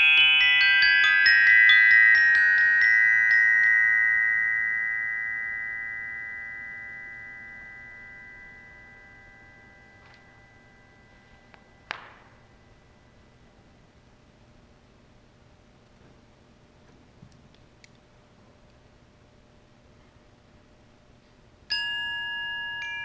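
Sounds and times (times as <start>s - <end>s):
glockenspiel ringing: 0.0s - 13.3s, 21.7s - 23.0s.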